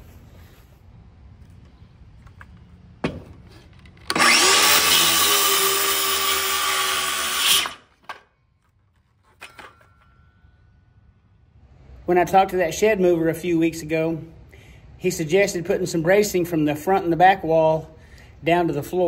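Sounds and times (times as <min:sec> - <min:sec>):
power drill driving a screw: 0:04.0 - 0:07.9.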